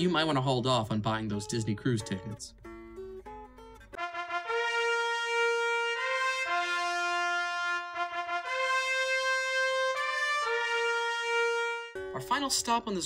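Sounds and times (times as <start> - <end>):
slow brass chords: 4.0 - 12.2.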